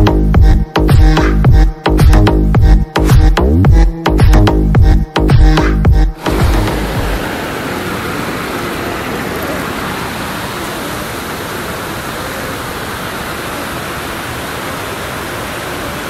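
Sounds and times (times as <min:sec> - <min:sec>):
waterfall rushing: 0:06.1 - 0:16.0.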